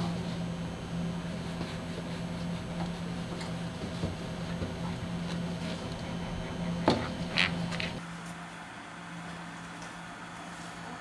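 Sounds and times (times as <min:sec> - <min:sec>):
steady low hum: 0:00.0 - 0:11.0
soft brushing: 0:01.2 - 0:08.0.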